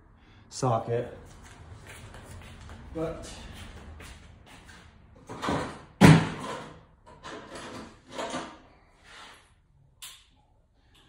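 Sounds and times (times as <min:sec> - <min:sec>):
tools clunking and scraping: 0:05.2 - 0:09.4.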